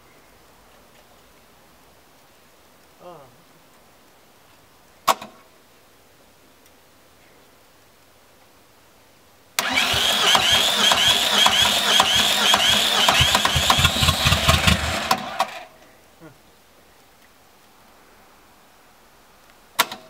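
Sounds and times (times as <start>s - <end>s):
starter motor cranking diesel engine: 9.6s - 15.7s
engine firing with low knocks: 10.4s - 15.5s.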